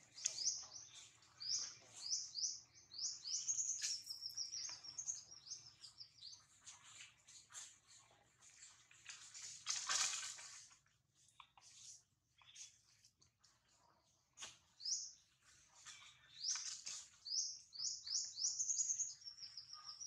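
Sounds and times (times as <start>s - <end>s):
bird chirping: 0.0s - 6.7s, 14.8s - 20.0s
rustling noise: 8.6s - 10.8s.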